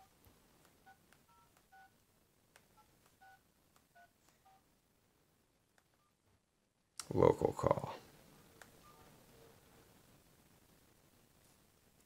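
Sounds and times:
phone keypad dialling tones: 0.8 - 2.0, 2.7 - 4.6.

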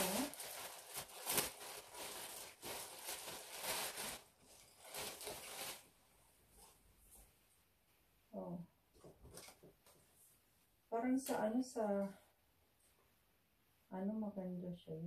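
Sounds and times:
plastic packaging crinkling: 0.0 - 6.0.

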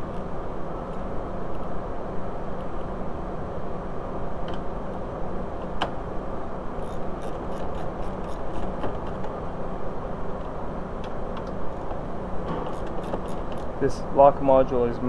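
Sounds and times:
steady background hiss: 8.1 - 15.0.

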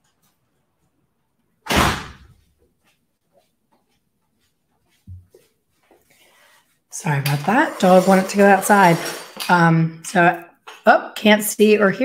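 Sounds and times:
door shutting with a bang: 1.7 - 2.3.

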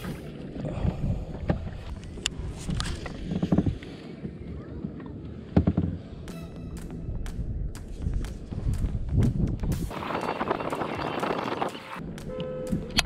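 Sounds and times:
wind rumble on microphone: 0.0 - 6.2, 7.0 - 13.0
knocks and clicks of kayak hull: 1.3 - 3.9, 5.5 - 6.0.

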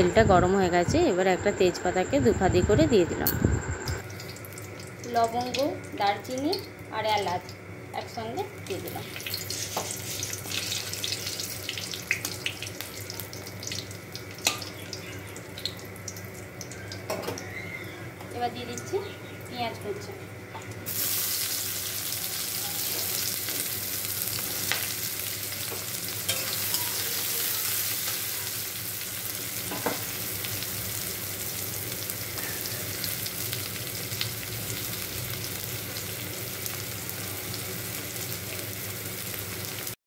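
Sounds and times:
onions sizzling in hot oil: 4.0 - 40.0.

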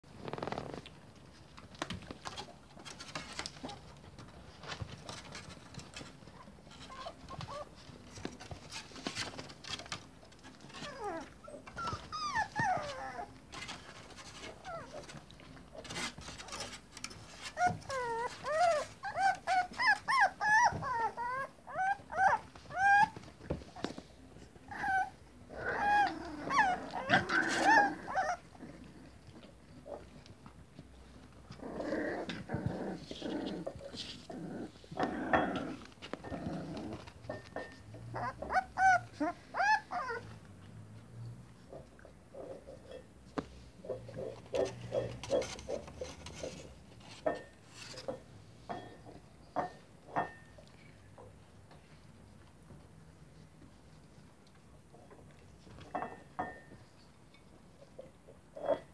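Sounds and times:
puppies whining and yelping: 5.0 - 23.9, 24.5 - 30.1, 36.2 - 40.4.

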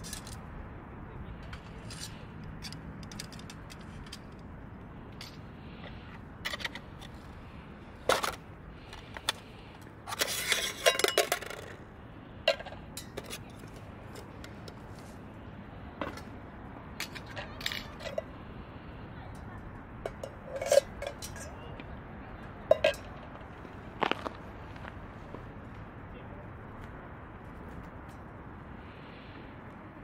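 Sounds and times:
metal pieces clinking and scraping: 0.0 - 0.5, 1.4 - 4.4, 10.1 - 11.8.

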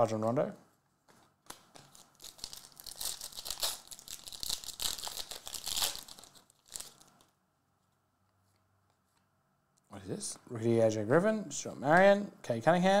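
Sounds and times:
foil wrapper tearing and crinkling: 1.5 - 7.3.

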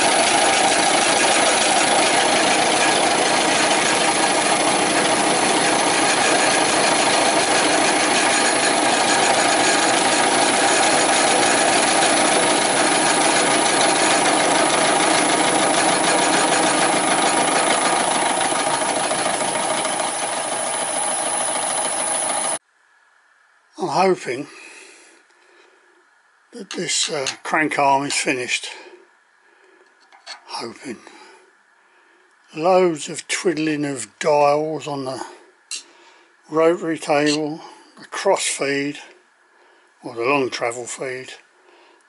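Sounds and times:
milling machine cutting metal: 0.0 - 22.6.

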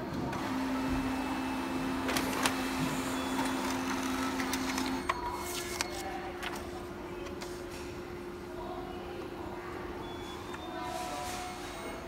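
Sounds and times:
printer motor hum: 0.0 - 8.4
printer paper feed clicks: 1.9 - 6.6.

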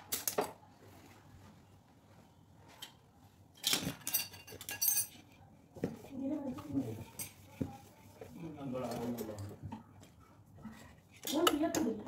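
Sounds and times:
metal tools clinking: 3.6 - 5.2.

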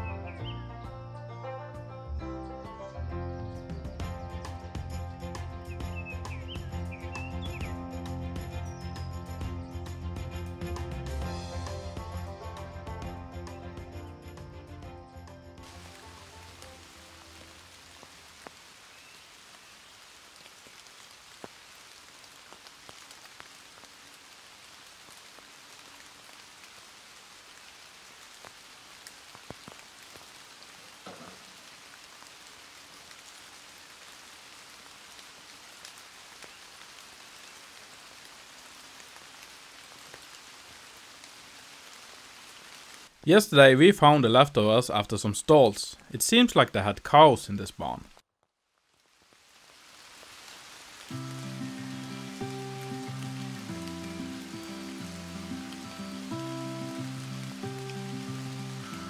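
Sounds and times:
faint steady hiss: 15.6 - 59.0.

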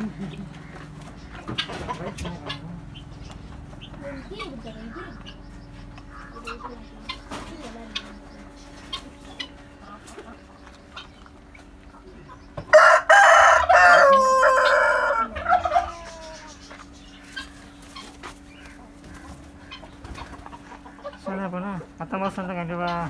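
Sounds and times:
rooster crowing: 12.6 - 16.5.

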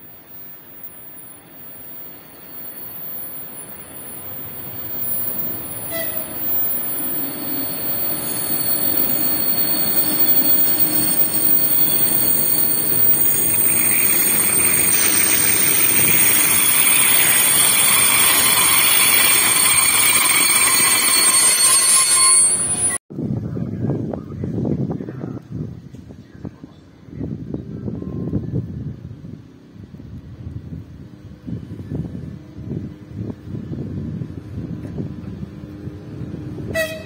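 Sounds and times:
braking wheels squealing: 0.0 - 23.0
train wheels rumbling on rails: 0.0 - 23.0.

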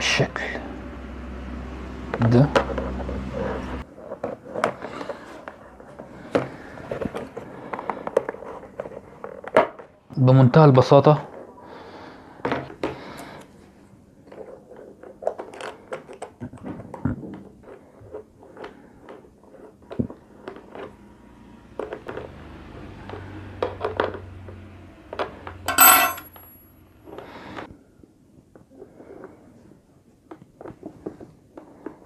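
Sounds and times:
small metal parts clinking: 25.7 - 26.6
spanner clanking on stone: 25.7 - 26.6.

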